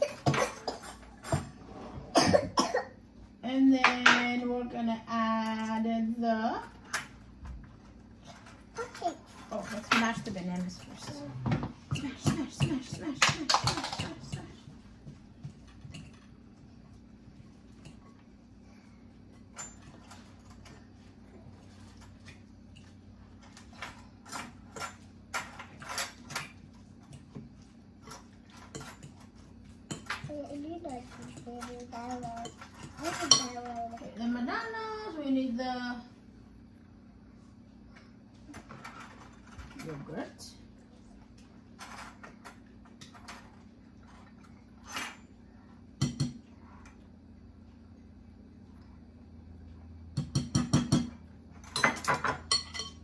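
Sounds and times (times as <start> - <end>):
fork clinking and scraping on glass: 51.7 - 53.0.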